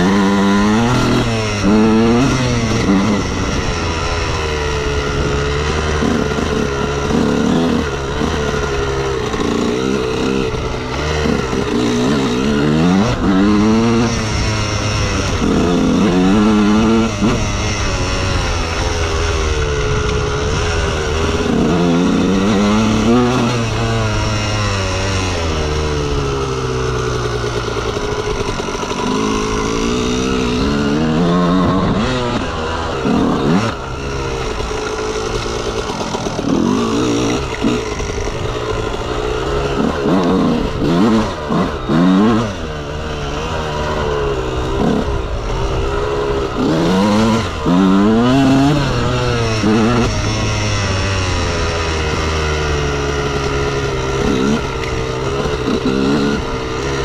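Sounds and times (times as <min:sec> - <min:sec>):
two-stroke engine revving: 0:00.0 - 0:57.0.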